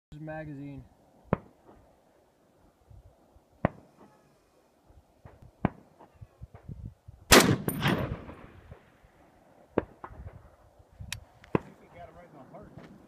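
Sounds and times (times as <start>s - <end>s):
rifle shot: 7.3s - 8.9s.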